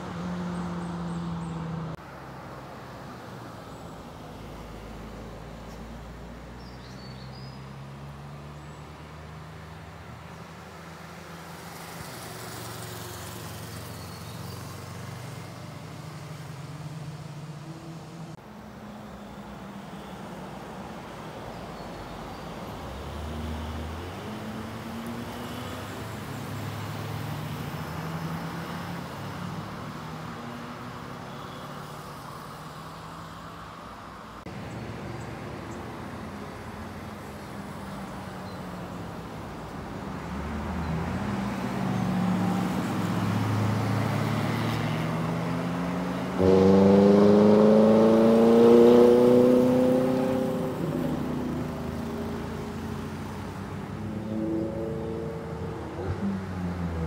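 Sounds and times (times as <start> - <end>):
cars passing: 0.0 - 57.0
motorcycle passing: 40.6 - 57.0.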